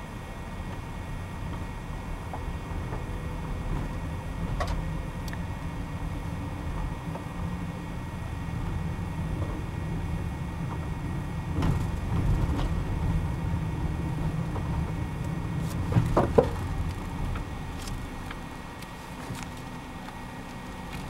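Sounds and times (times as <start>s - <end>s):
car engine and tyres rumbling: 0.0s - 21.0s
branches knocking against car: 15.6s - 21.0s.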